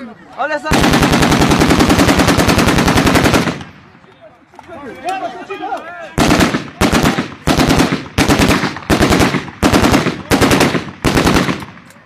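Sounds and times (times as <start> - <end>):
automatic rifle fire bursts: 0.7 - 3.8, 6.2 - 11.9.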